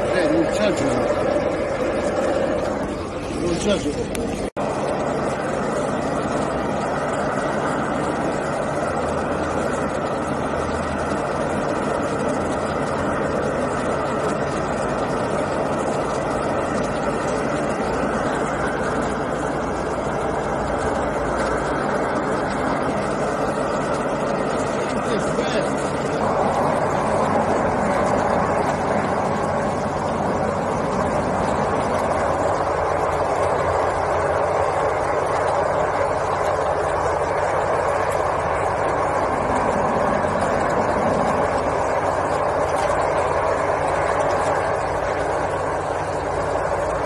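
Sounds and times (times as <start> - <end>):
diesel engine running: 0.0 - 47.0.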